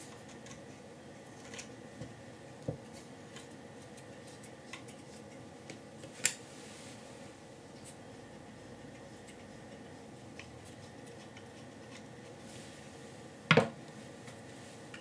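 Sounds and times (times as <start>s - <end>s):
object set down on bench: 13.5s - 13.8s.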